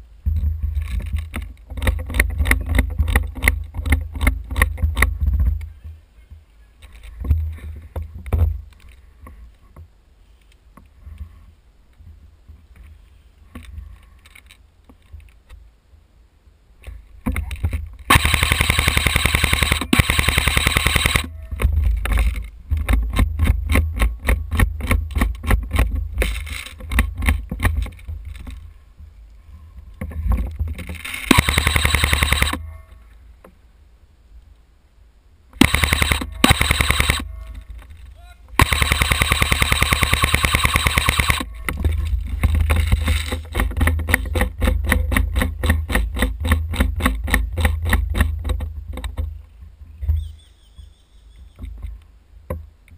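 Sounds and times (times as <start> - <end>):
airsoft guns firing bursts: 18.1 - 21.3, 31.3 - 32.6, 35.6 - 37.3, 38.6 - 41.5.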